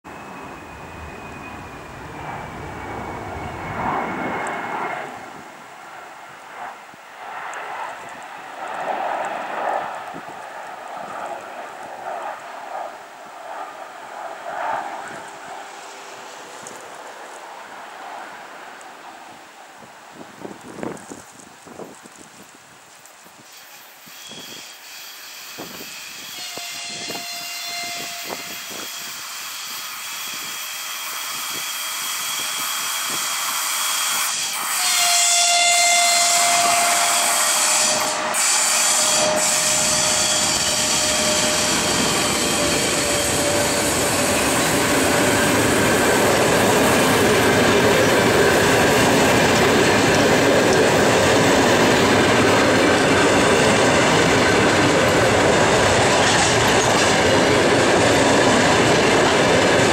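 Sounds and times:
electric locomotive whine: 0:00.1 - 0:59.9
train wheels rushing on rails: 0:23.4 - 0:59.9.

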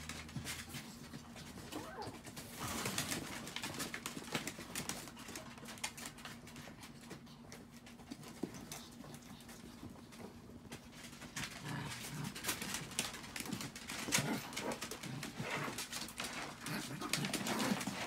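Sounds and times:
dogs grumbling: 0:11.2 - 0:18.0.

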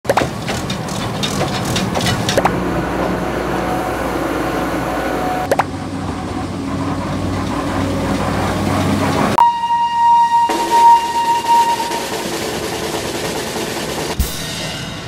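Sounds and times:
street and engine rumble: 0:00.0 - 0:09.5
locomotive whistle blast: 0:02.5 - 0:05.5, 0:09.3 - 0:13.0.

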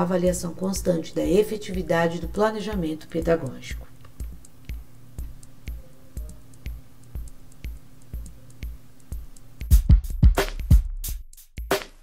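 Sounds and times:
drum-machine track: 0:00.0 - 0:12.0
soft kick-drum beat: 0:00.0 - 0:12.0.

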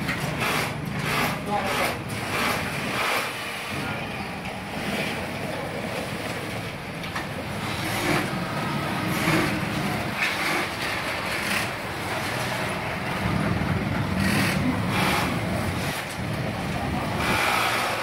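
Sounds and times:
sewing machine motors humming: 0:00.0 - 0:03.6, 0:07.5 - 0:18.0
sewing machines stitching: 0:00.0 - 0:03.8, 0:07.4 - 0:18.0.

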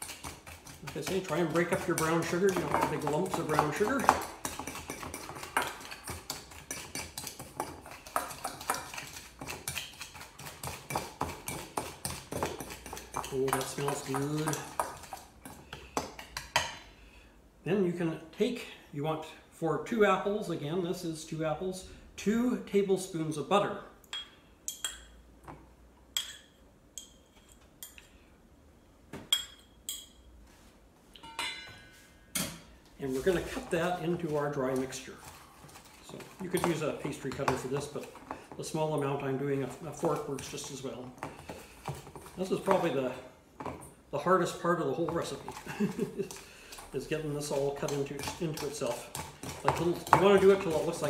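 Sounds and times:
utensil scraping metal bowl: 0:00.0 - 0:15.6, 0:44.3 - 0:51.0.

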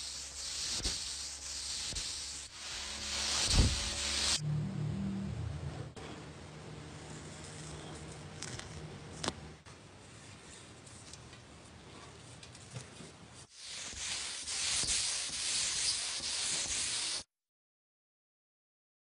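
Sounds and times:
faint rubbing: 0:00.0 - 0:04.4, 0:13.5 - 0:17.3
paint spray gun hissing: 0:00.0 - 0:04.4, 0:13.6 - 0:17.2.

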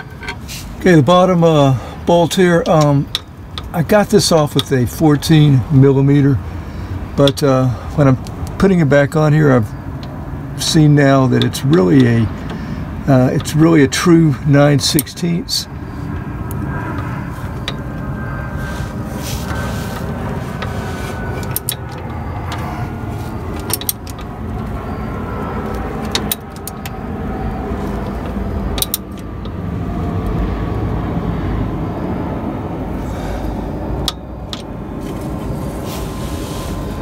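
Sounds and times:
steady low rumble: 0:00.0 - 0:37.0
wrench clicking: 0:21.4 - 0:22.7, 0:23.6 - 0:24.7, 0:28.1 - 0:29.6.

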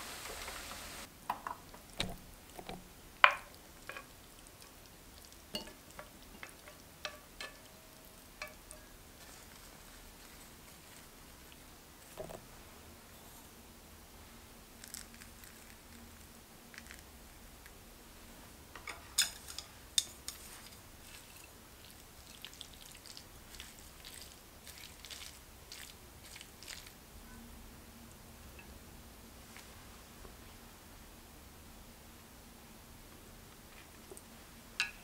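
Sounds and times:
chopsticks clicking in a metal pan: 0:08.4 - 0:08.9, 0:18.9 - 0:20.4
wet noodle rustles: 0:09.1 - 0:12.2, 0:19.0 - 0:27.0.

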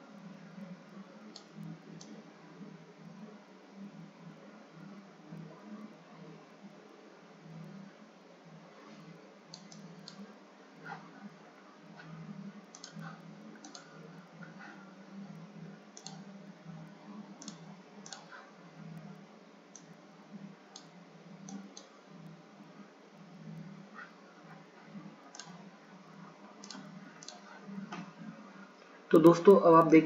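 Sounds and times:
steady low hum: 0:00.0 - 0:30.0
computer mouse button clicking: 0:09.5 - 0:10.2, 0:12.7 - 0:13.0, 0:13.6 - 0:13.9, 0:16.0 - 0:16.2, 0:17.4 - 0:18.3, 0:25.3 - 0:25.6.

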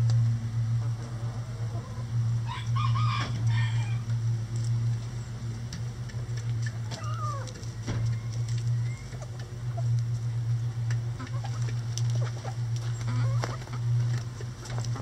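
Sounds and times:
steady low hum: 0:00.0 - 0:15.0
rooster crowing: 0:02.4 - 0:04.1.

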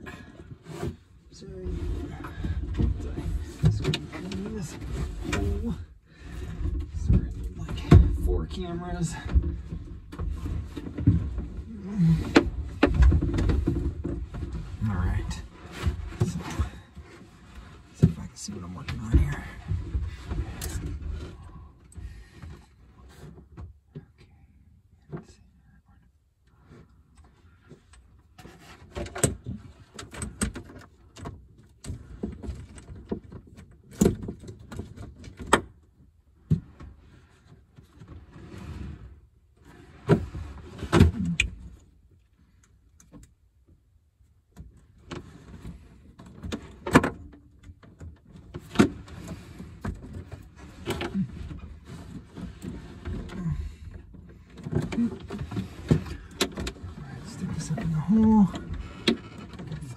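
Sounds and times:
hands handling wiring and hardware: 0:44.5 - 0:59.9.

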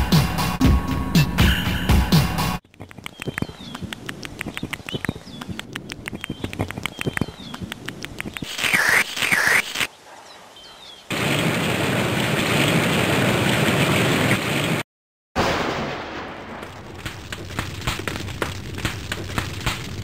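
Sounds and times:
cartoon swooping squeaks: 0:08.4 - 0:09.9
rain downpour: 0:08.4 - 0:14.8, 0:15.4 - 0:20.0
fire crackling: 0:11.1 - 0:14.8, 0:15.4 - 0:20.0
loud lightning crash: 0:11.1 - 0:14.8, 0:15.4 - 0:19.0.

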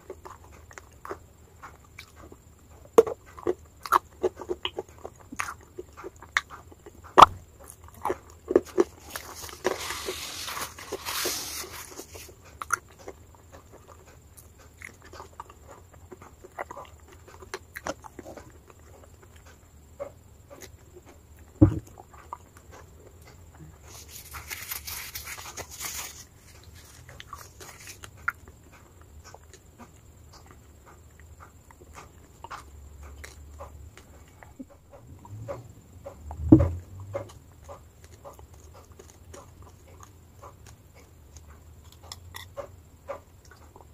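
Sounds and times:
loud thump: 0:21.6 - 0:21.8.

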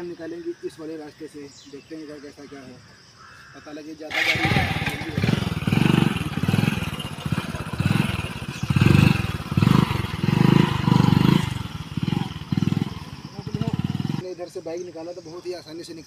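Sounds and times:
motorcycle engine revving: 0:04.1 - 0:14.2.

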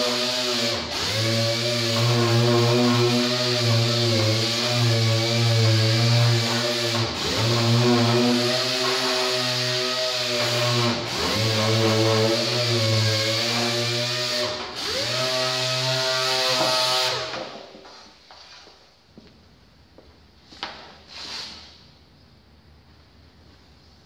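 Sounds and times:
air sander whining: 0:00.0 - 0:17.6.

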